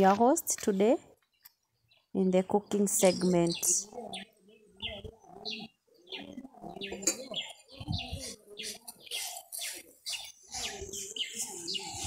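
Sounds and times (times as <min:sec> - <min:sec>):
birds chirping: 0:00.0 - 0:12.0
lower bird calls: 0:03.0 - 0:12.0.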